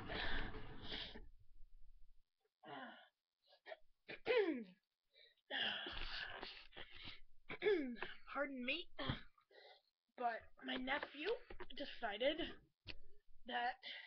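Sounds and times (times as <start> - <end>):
person sneezing: 4.1 - 4.7.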